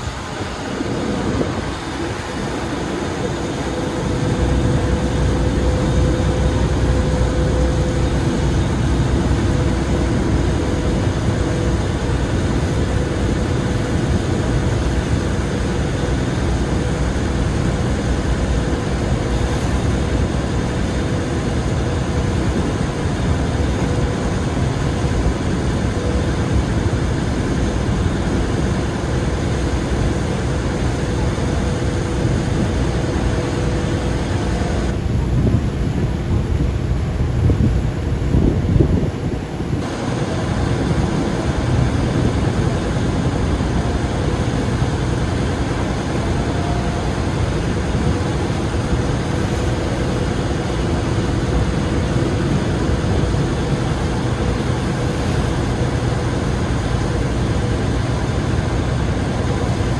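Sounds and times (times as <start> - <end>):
boat engine running: 0.0 - 59.9
water rushing past hull: 0.0 - 59.9.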